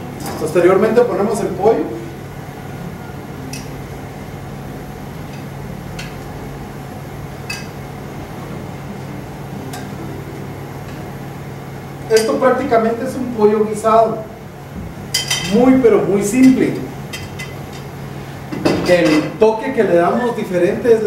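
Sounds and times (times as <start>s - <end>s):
metal tongs clinking: 12.1s - 12.4s, 15.1s - 15.6s.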